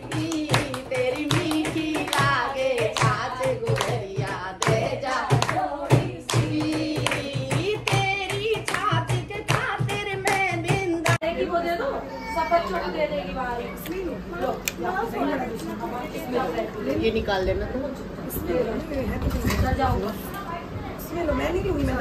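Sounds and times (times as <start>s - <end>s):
steady hand-clapping: 0.0s - 11.2s
women singing together: 0.0s - 11.8s.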